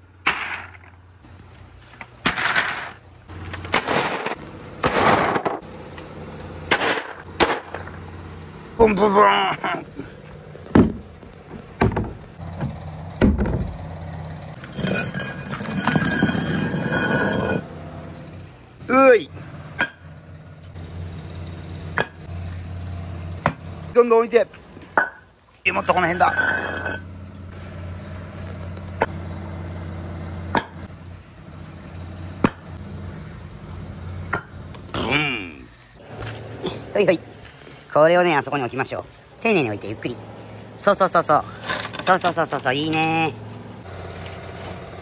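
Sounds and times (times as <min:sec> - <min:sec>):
machine drone: 0:03.3 - 0:24.0, 0:26.2 - 0:37.8.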